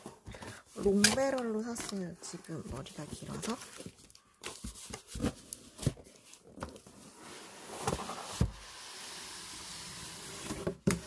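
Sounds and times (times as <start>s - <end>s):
box sliding against cardboard: 7.0s - 11.0s.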